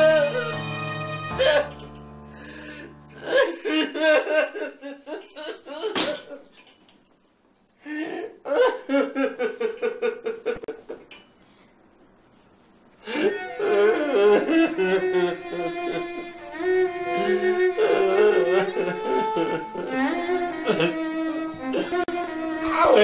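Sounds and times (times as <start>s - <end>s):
woman sobbing and wailing: 0.0s - 1.8s, 2.8s - 6.4s, 13.0s - 22.1s.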